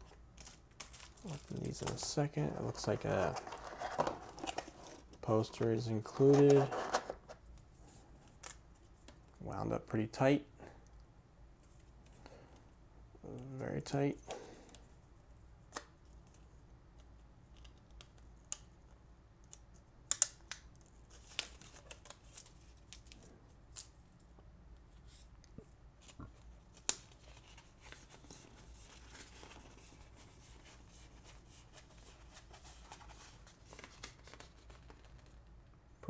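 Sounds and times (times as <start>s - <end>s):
paper poster crinkling: 0.4s - 7.3s, 26.0s - 35.4s.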